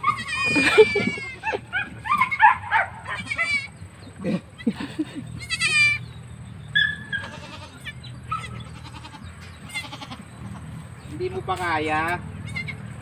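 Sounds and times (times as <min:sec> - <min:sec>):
goat kid bleating: 0:00.0 - 0:02.4, 0:03.0 - 0:06.2, 0:07.0 - 0:10.8, 0:12.4 - 0:12.9.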